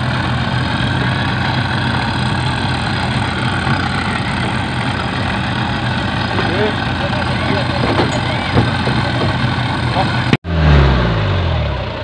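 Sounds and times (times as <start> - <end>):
outboard motor running: 0.0 - 10.4.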